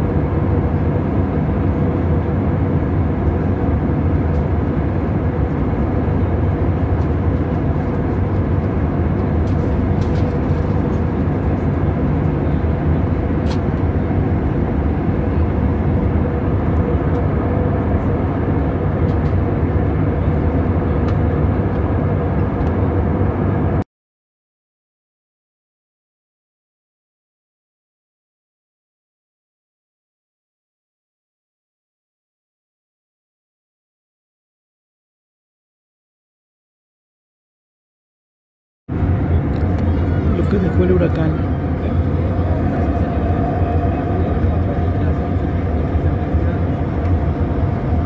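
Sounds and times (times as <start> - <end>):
airplane cabin engine and airflow rush: 0.0 - 23.9, 38.9 - 48.0.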